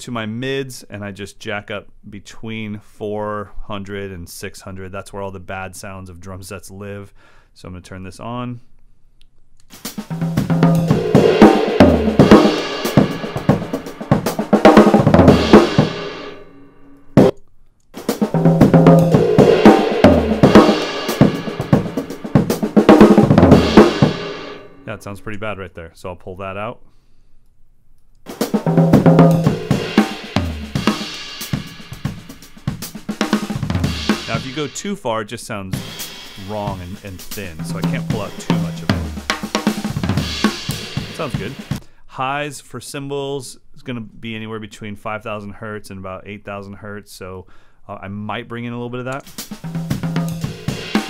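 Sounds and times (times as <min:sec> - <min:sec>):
drum kit playing a groove: 0:09.7 - 0:16.3, 0:18.0 - 0:24.6, 0:28.3 - 0:35.1, 0:35.7 - 0:41.8, 0:49.2 - 0:51.0.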